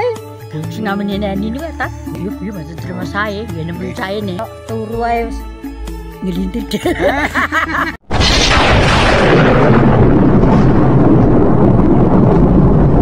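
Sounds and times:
explosion blast: 8.0s - 13.0s
loud rumble: 8.0s - 13.0s.

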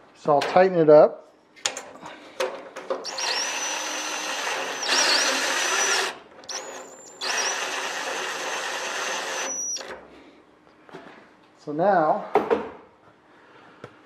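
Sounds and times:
power drill motor whining: 3.0s - 10.0s.

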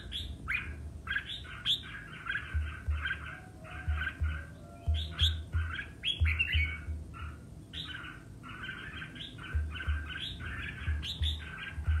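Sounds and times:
bird singing chirpy notes: 0.0s - 12.0s
low thumps: 2.4s - 7.2s, 9.5s - 12.0s.

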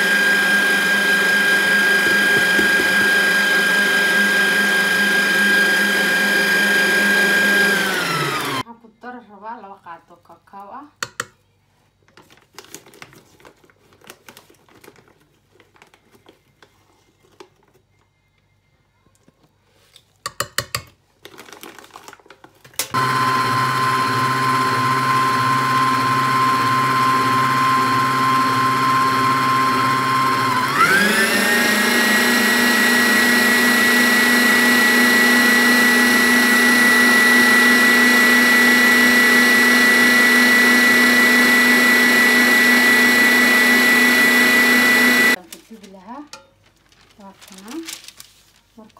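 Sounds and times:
stand mixer whining: 0.0s - 8.6s, 22.9s - 45.4s.

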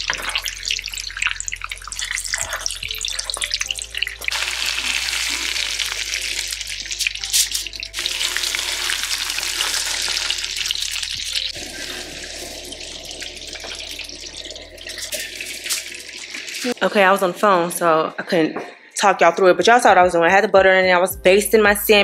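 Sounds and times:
fish sizzling in hot oil: 0.0s - 16.9s
oil popping and crackling: 0.0s - 16.9s.

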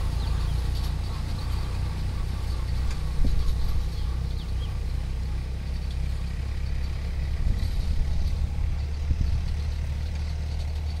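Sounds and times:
tractor diesel engine rumbling: 0.0s - 11.0s.

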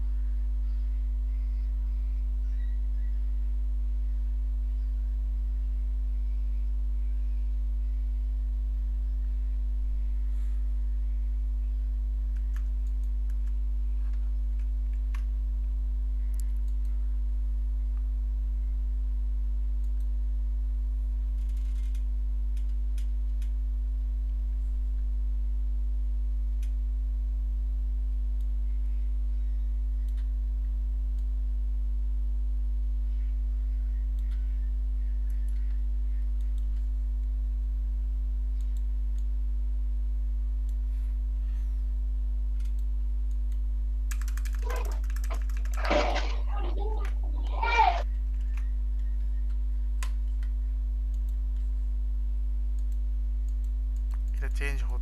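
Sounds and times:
low electrical hum: 0.0s - 55.0s
keyboard and mouse clicks: 43.5s - 46.4s.

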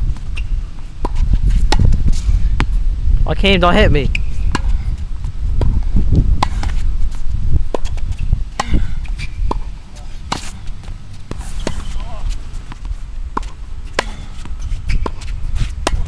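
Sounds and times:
tennis ball hit by racket: 1.0s - 2.7s, 6.4s - 6.9s, 7.7s - 16.0s.

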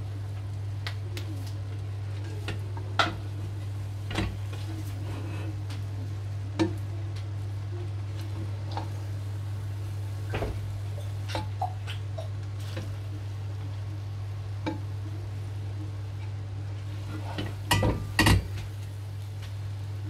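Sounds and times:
metal clanks against pot: 17.4s - 18.6s.

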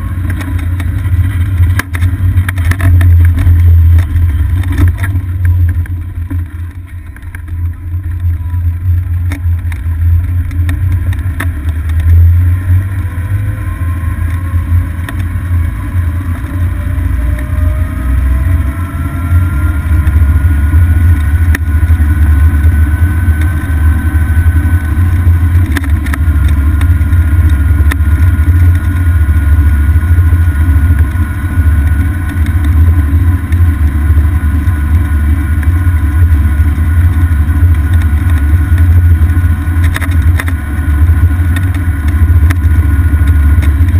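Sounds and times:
golf cart rumble and whine: 0.0s - 43.9s.

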